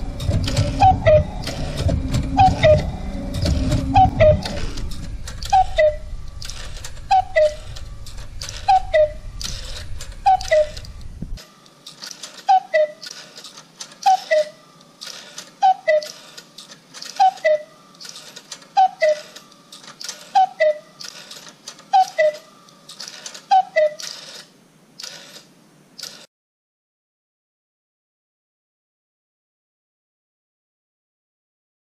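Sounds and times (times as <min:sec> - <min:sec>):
low hum: 0:00.0 - 0:11.5
striking mechanism clatter: 0:00.0 - 0:26.3
cuckoo clock pipes calling: 0:00.1 - 0:07.8, 0:08.4 - 0:10.9, 0:12.1 - 0:13.3, 0:14.0 - 0:16.4, 0:17.0 - 0:19.4, 0:20.0 - 0:24.4.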